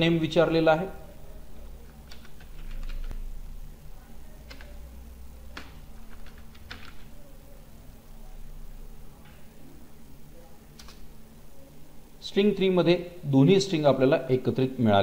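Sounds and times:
steady low hum: 0:00.0 - 0:15.0
computer keyboard keystrokes: 0:02.0 - 0:03.2, 0:04.4 - 0:04.8, 0:05.5 - 0:07.0, 0:10.8 - 0:11.0.

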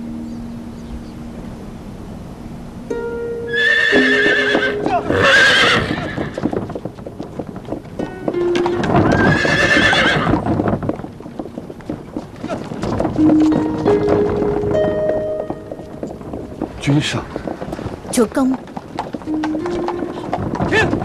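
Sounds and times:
background music: 0:02.8 - 0:06.2, 0:08.0 - 0:10.3, 0:13.2 - 0:17.1, 0:19.3 - 0:21.0
horse neighing: 0:03.5 - 0:06.5, 0:08.8 - 0:10.4
hooves clopping: 0:03.5 - 0:21.0.

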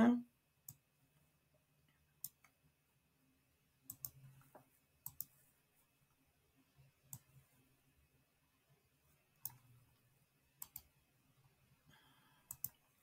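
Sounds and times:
computer mouse clicks: 0:00.6 - 0:00.9, 0:01.9 - 0:02.6, 0:03.8 - 0:05.4, 0:07.0 - 0:07.4, 0:09.4 - 0:09.7, 0:10.6 - 0:11.0, 0:12.4 - 0:13.0.

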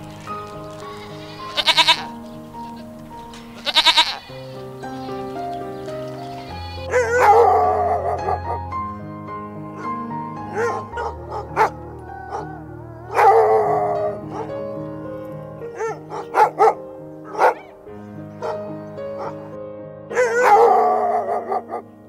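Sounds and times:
background music: 0:00.0 - 0:22.0
dog yelping: 0:06.5 - 0:08.6, 0:10.5 - 0:14.5, 0:15.7 - 0:17.8, 0:18.4 - 0:19.4, 0:20.1 - 0:21.8
dog barking: 0:06.9 - 0:08.7, 0:09.8 - 0:14.6, 0:15.7 - 0:17.8, 0:18.4 - 0:19.5, 0:20.1 - 0:21.9.

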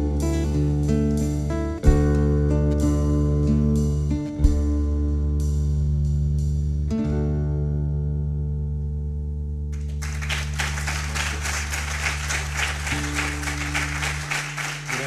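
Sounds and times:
audience applause: 0:09.8 - 0:15.0
acoustic guitar chord ringing: 0:10.4 - 0:15.0.

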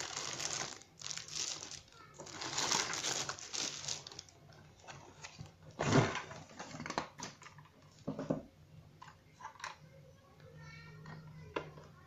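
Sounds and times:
packaging rustling: 0:00.0 - 0:05.5.

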